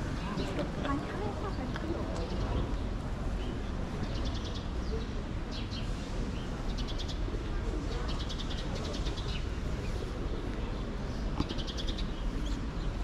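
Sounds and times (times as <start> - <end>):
low rumble of street ambience: 0.0 - 13.0.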